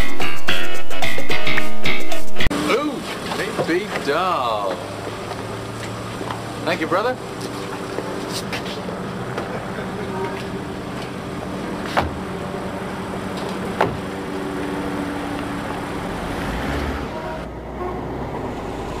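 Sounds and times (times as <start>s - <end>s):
car pulling away: 2.5s - 19.0s
car engine idling: 2.6s - 16.3s
car door shutting: 11.8s - 12.3s, 13.3s - 14.1s.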